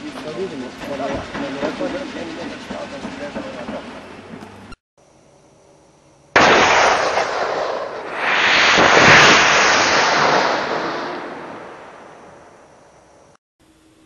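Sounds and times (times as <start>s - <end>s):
propellant burning with rushing noise: 6.4s - 12.8s
sudden blast: 6.4s - 12.8s.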